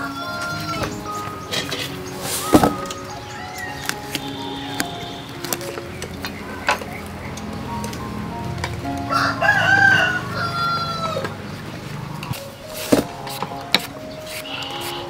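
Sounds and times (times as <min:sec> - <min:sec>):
rooster crowing: 0:00.0 - 0:01.0, 0:09.1 - 0:11.4
light background music: 0:00.0 - 0:15.0.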